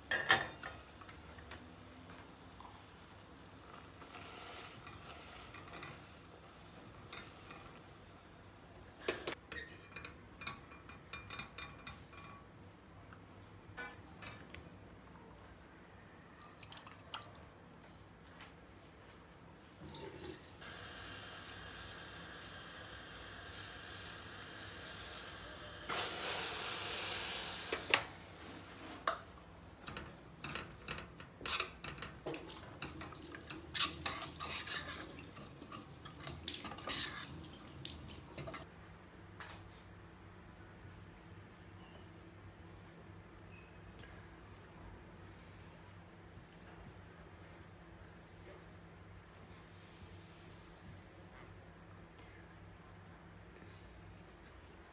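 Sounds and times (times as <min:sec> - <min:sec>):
water hissing and bubbling in pot: 0:02.4 - 0:08.1, 0:31.6 - 0:38.7
utensil scraping against pot: 0:03.7 - 0:07.9, 0:29.8 - 0:37.8.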